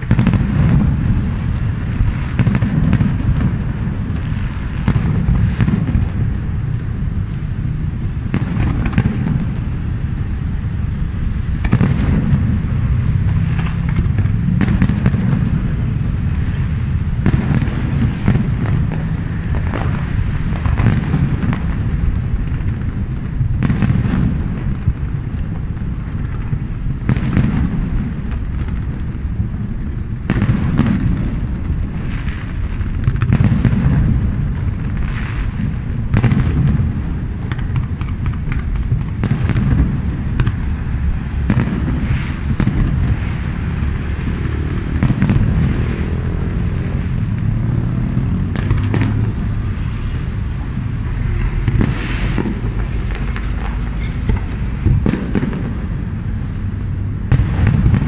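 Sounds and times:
firework crackling: 0.0 - 58.0.

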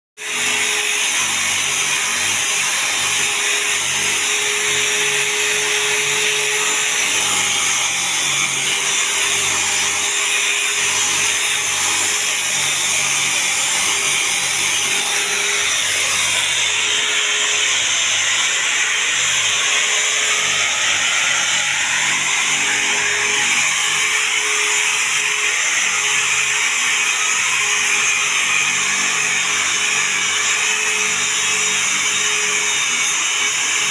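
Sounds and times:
rotary polisher motor whine: 0.2 - 33.9.

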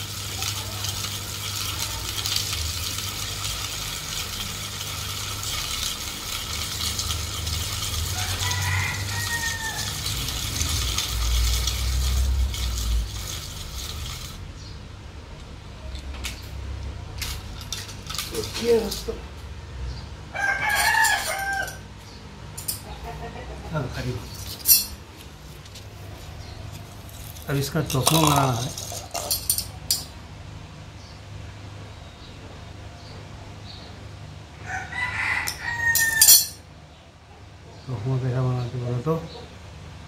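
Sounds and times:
fishing reel gears whirring: 0.0 - 14.5
rooster crowing: 7.6 - 10.9, 20.2 - 22.0, 34.5 - 36.6.

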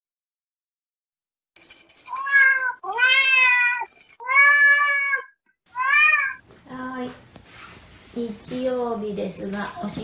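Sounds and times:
cat meowing: 2.2 - 6.4.

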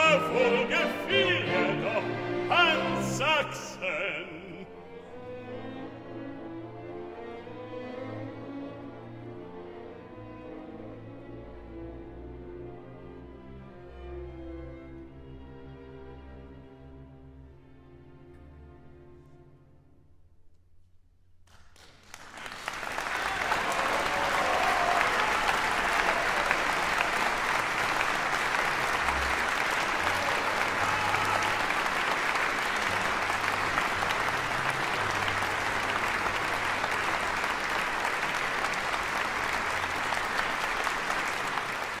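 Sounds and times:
audience applauding: 0.0 - 4.6, 21.5 - 42.0.

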